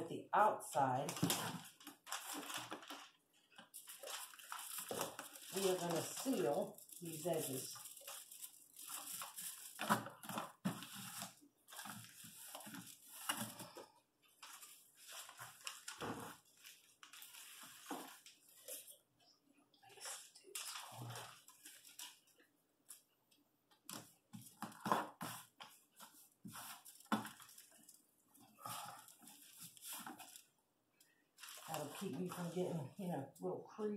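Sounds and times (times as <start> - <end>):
foil tape crinkling: 1.2 - 13.5.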